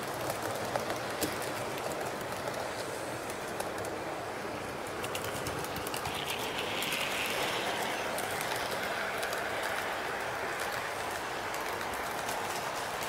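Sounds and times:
model train rolling hum: 0.0s - 13.0s
wheels clicking on rails: 0.0s - 13.0s.

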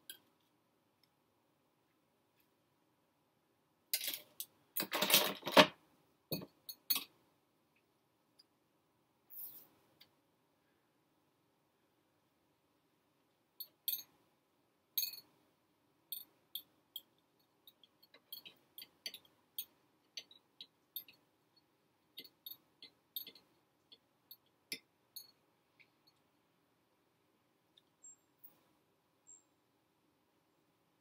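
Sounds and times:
faint hiss: 9.0s - 13.1s.

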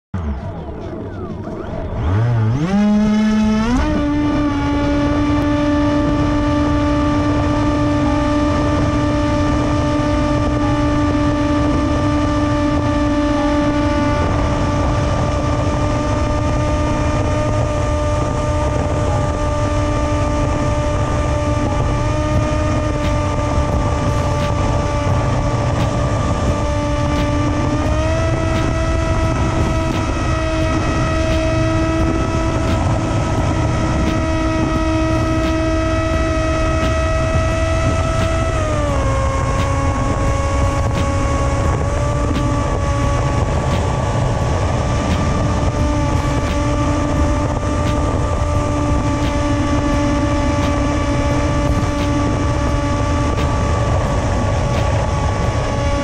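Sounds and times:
electric motor and propeller whine: 0.2s - 56.0s
wind on microphone: 0.2s - 56.0s.

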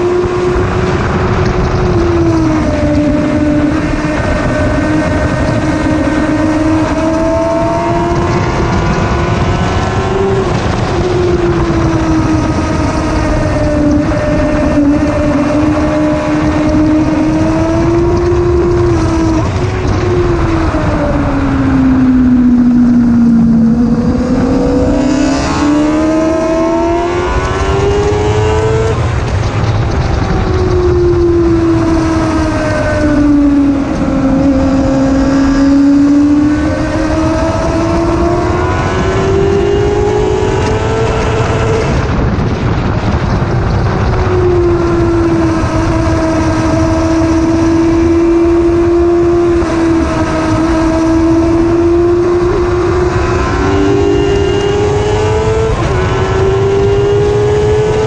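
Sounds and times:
motorcycle engine revving: 0.0s - 58.0s
rush of wind noise: 0.0s - 58.0s.

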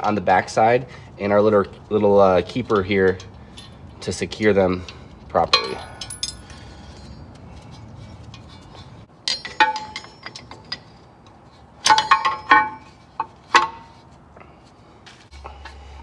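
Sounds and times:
metal clinks and taps: 5.5s - 11.0s, 11.8s - 13.9s.

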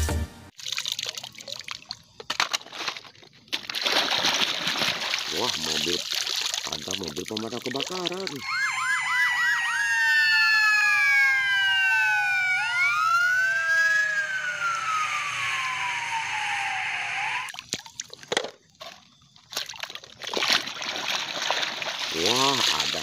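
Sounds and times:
water sloshing: 0.6s - 8.4s, 17.5s - 23.0s
fire engine sirens wailing: 8.3s - 17.5s.

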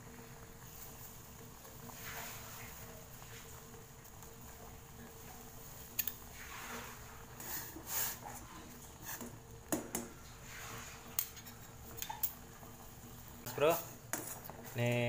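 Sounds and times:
water boiling in pot: 0.0s - 15.0s.

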